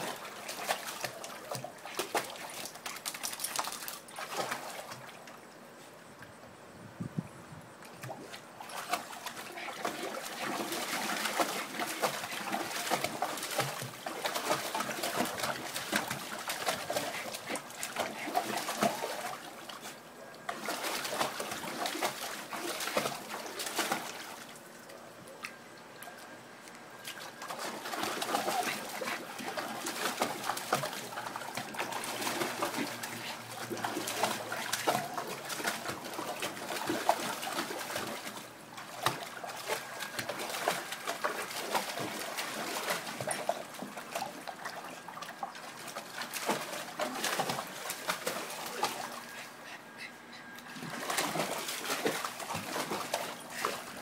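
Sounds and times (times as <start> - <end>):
water splashing in a plastic pool: 0.0 - 6.4, 7.8 - 54.0.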